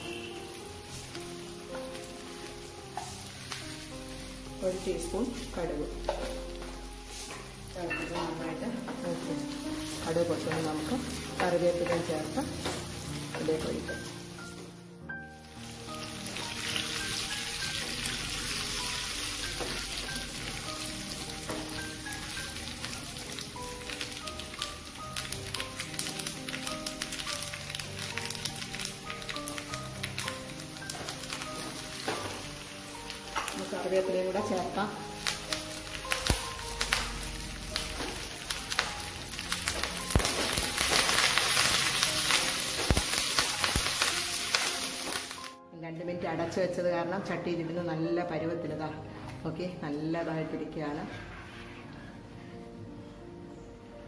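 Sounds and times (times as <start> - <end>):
seeds sizzling in hot oil: 0.0 - 45.6
soft background music: 0.0 - 54.0
seeds popping: 20.6 - 32.5, 33.1 - 45.5.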